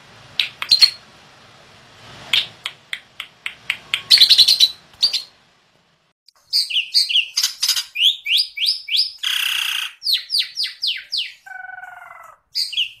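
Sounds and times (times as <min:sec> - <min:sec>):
lovebird chirping: 0:00.4 - 0:01.1, 0:02.3 - 0:05.4, 0:06.4 - 0:13.0
bird buzzy call: 0:03.5 - 0:05.3.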